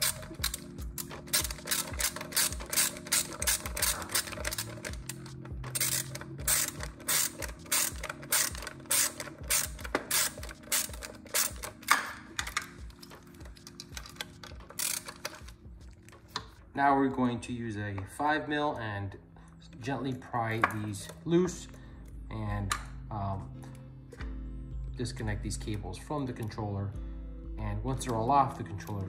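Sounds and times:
ratcheting driver clicking: 0:00.0 - 0:15.6.

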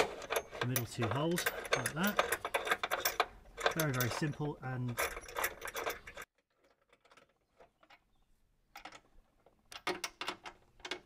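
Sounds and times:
metal tools clattering: 0:00.0 - 0:08.1.

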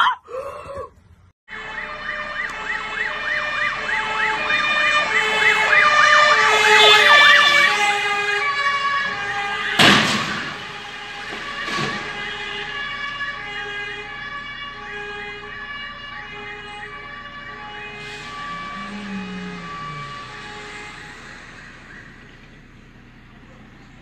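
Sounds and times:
loud vehicle crash: 0:01.5 - 0:23.8
fire engine siren yelp: 0:01.5 - 0:24.0
wailing siren tones: 0:01.5 - 0:24.0.

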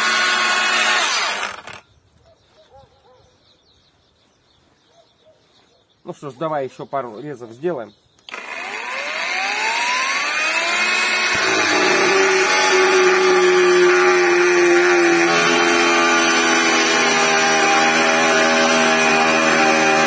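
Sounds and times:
angle grinder cutting metal: 0:00.0 - 0:01.8, 0:08.3 - 0:20.0.

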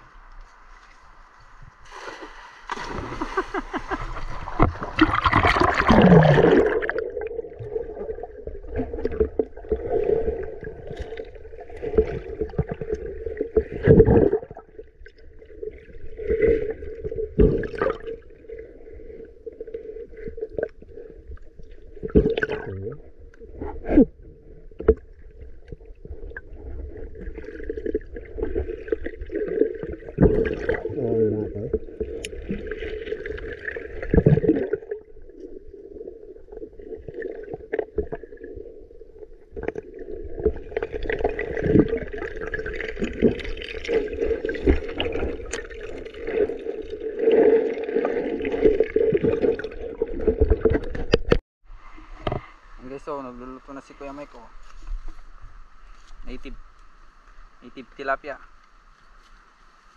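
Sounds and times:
underwater hum: 0:00.0 - 0:59.9
net splashing into water: 0:01.9 - 0:07.0.

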